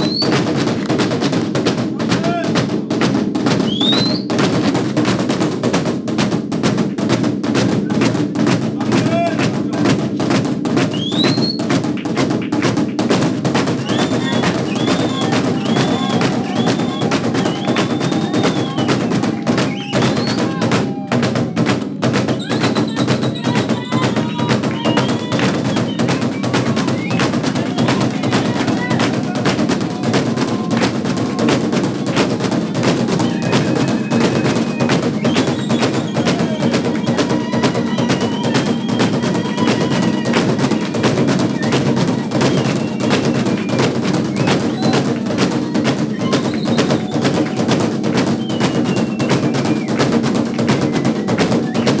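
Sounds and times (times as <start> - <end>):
fast drumming: 0.0 - 52.0
high calls: 13.8 - 49.9.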